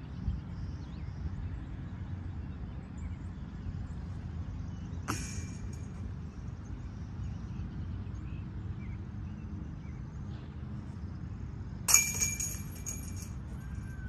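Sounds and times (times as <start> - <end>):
disc striking metal basket: 5.1 - 6.2, 11.9 - 14.0
chains jangling: 11.9 - 13.8.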